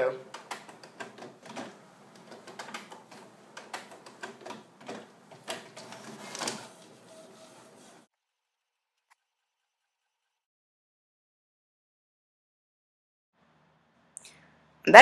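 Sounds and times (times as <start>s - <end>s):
printer clicking and whirring: 0.0s - 8.1s.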